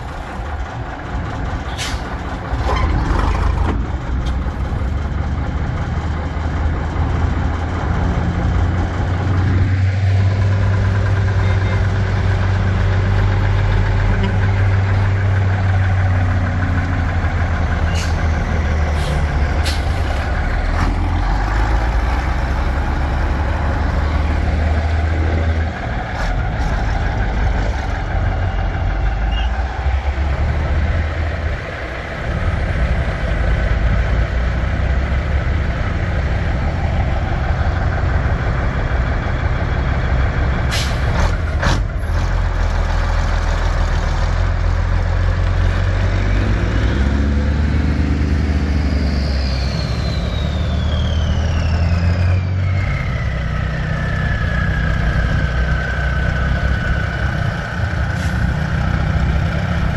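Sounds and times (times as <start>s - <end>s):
diesel truck engines droning: 0.0s - 59.9s.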